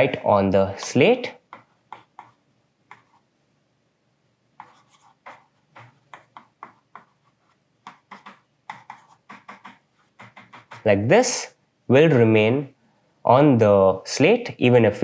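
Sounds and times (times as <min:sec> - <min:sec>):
stylus scratching on writing pad: 0:01.4 - 0:03.2, 0:04.6 - 0:10.9.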